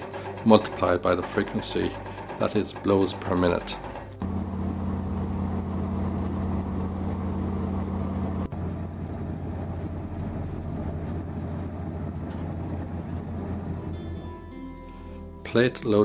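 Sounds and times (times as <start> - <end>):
milling machine grinding: 0.0 - 14.0
diesel engine humming: 4.0 - 14.6.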